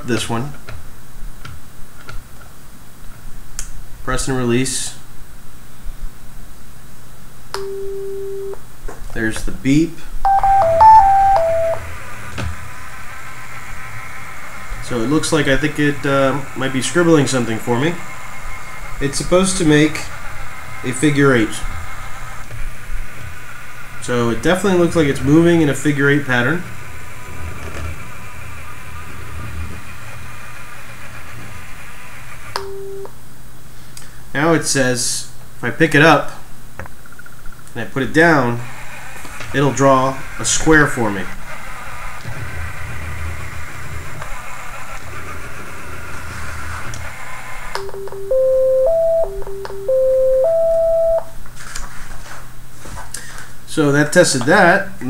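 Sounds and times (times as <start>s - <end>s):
short beep: 10.2s - 11.8s, 32.6s - 33.1s, 47.8s - 51.3s.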